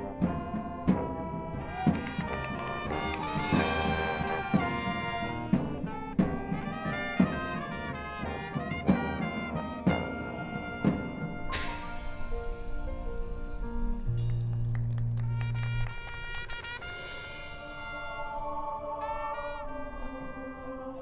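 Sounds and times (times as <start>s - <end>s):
brass sustained chords: 0.0s - 21.0s
sharp percussion hits: 8.3s - 17.6s.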